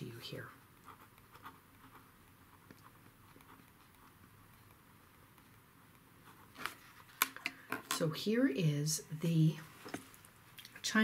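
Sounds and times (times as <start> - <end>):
pen writing on paper: 0.9 - 4.2.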